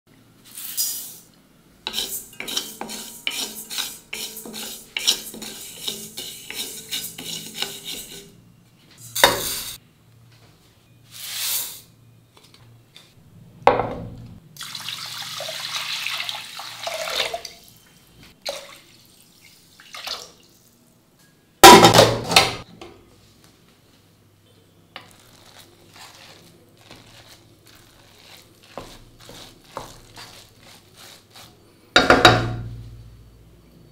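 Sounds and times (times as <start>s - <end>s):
water swishing in pot: 1.9s - 8.3s, 25.0s - 31.7s
spatula scraping steel pan: 1.9s - 8.4s, 25.0s - 32.4s.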